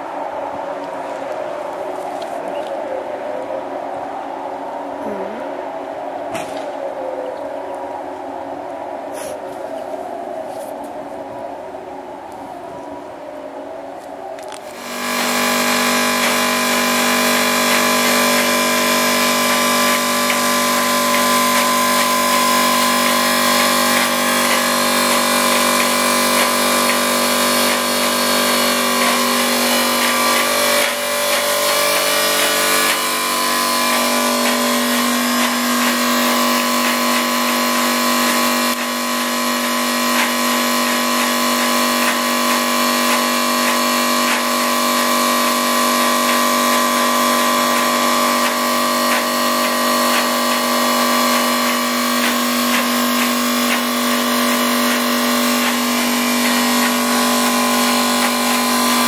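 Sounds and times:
loud machine drone: 0:00.0 - 0:06.9, 0:14.4 - 0:59.0
air compressor humming: 0:14.6 - 0:59.0.

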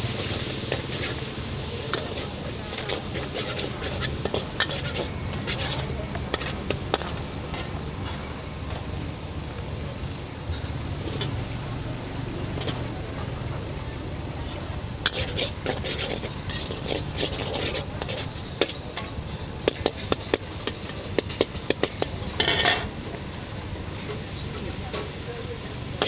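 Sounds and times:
noodles sizzling in a wok: 0:00.0 - 0:26.0
metal spatula scraping: 0:00.1 - 0:08.3, 0:15.0 - 0:23.0
spatula clanking against wok: 0:15.0 - 0:23.0.

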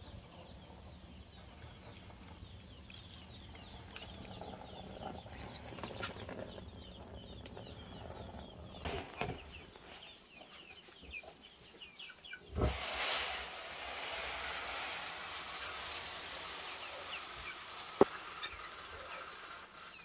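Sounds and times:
birds chirping: 0:00.0 - 0:12.8, 0:13.4 - 0:20.0
loud rushing noise: 0:12.6 - 0:18.1.

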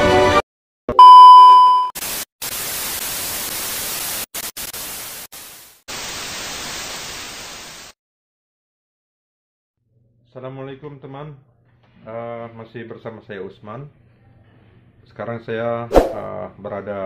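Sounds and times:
test-tone beep: 0:00.9 - 0:01.9
tv static hiss: 0:02.0 - 0:07.9.

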